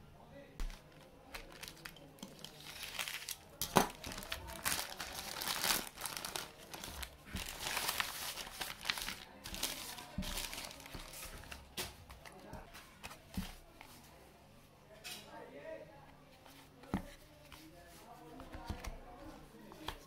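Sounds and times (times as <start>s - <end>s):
plastic bag crinkling and tearing: 0.6s - 11.7s.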